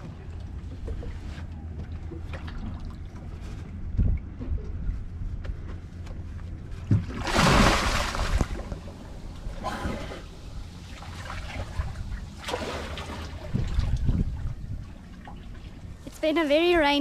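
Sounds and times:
loud splash of diving: 7.0s - 8.8s, 12.4s - 13.5s
swimming splashes: 7.0s - 8.9s, 9.7s - 13.9s.

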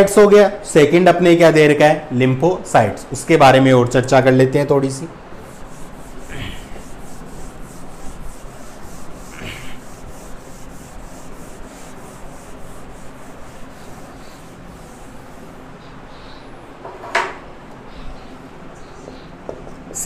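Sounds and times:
duster rubbing on whiteboard: 5.4s - 16.4s.

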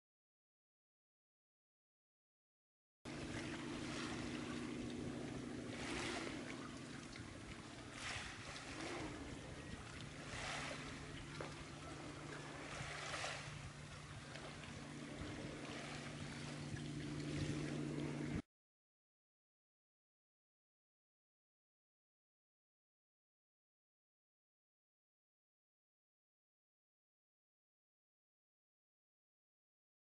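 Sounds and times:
steady low hum: 3.1s - 18.4s.

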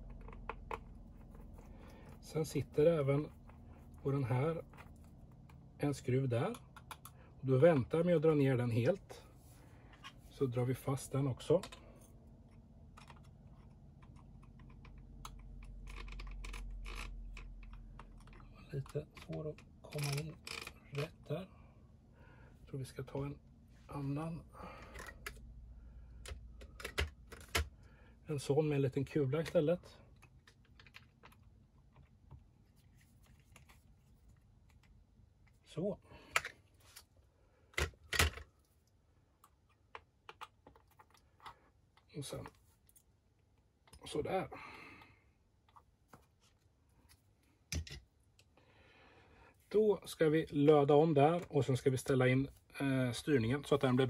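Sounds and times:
low steady hum: 0.0s - 54.0s
small irregular clicks and taps: 6.4s - 7.3s, 11.6s - 21.1s, 26.2s - 27.8s, 29.4s - 32.5s, 37.7s - 44.0s.

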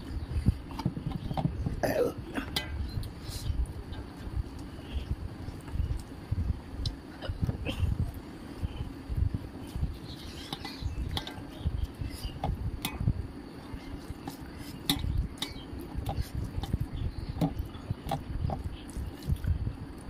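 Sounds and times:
fingers squelching in food: 13.6s - 20.0s.

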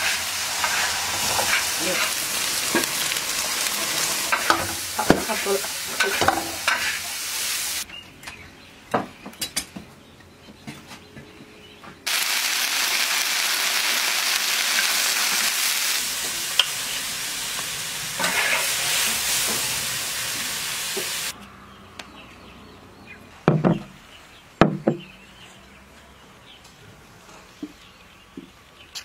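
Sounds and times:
pancake sizzling in wok: 0.0s - 7.8s, 12.1s - 21.4s.

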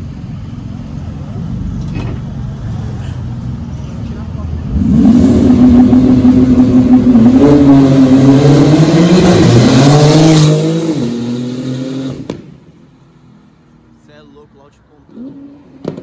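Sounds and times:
sports car accelerating: 3.6s - 12.6s, 15.0s - 16.0s.

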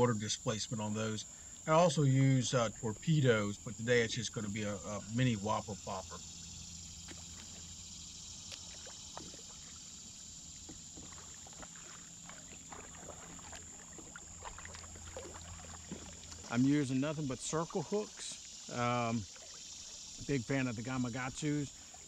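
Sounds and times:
water dripping: 6.8s - 22.0s
paddle splashing in water: 7.0s - 22.0s.

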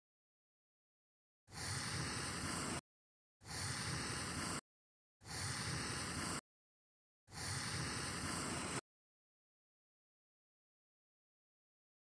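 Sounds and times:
bursts of steady hiss: 1.5s - 2.8s, 3.4s - 4.6s, 5.2s - 6.4s, 7.3s - 8.8s.

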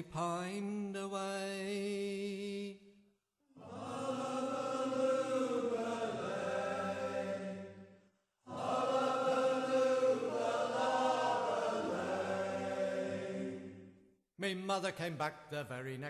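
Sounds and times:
men's chorus singing in harmony: 3.6s - 7.9s, 8.5s - 13.9s.

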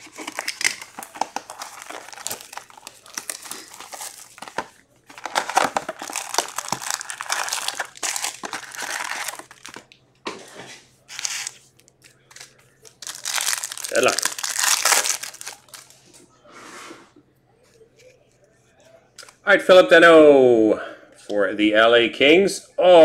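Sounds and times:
plastic wrap crinkling and tearing: 0.0s - 10.0s, 11.0s - 16.0s
foil card packs handled: 0.0s - 10.5s, 11.1s - 16.0s.

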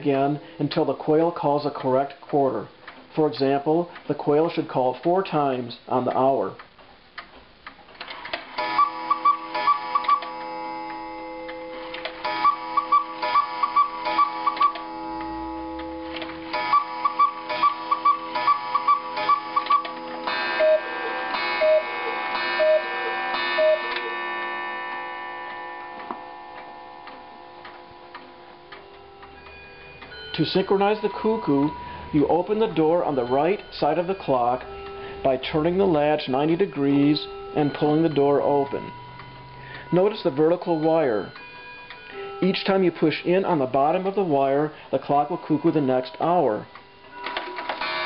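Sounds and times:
clock ticking: 6.0s - 48.0s
clock mechanism clicks: 6.1s - 24.2s.

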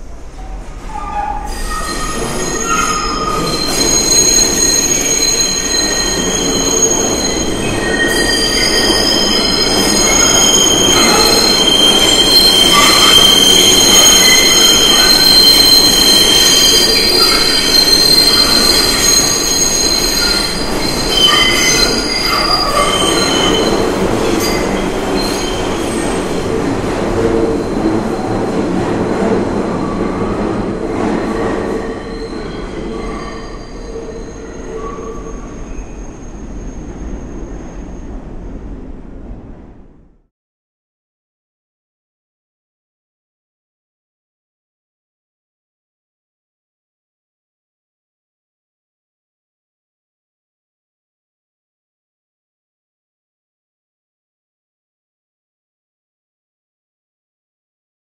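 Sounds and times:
rumble of train cars: 0.0s - 40.3s
train wheels squealing: 0.3s - 26.5s, 29.4s - 38.2s.

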